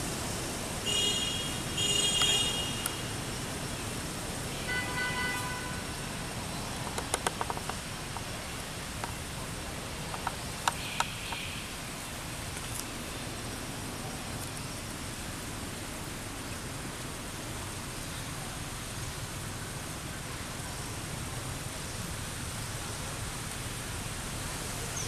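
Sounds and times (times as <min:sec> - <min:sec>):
steady background hiss: 0:00.0 - 0:25.0
sharp clicks: 0:06.8 - 0:08.3, 0:10.1 - 0:11.5.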